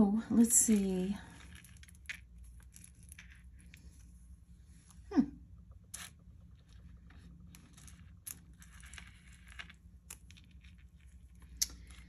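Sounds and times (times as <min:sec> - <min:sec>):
jewelry clicking and rustling: 0:00.4 - 0:04.1.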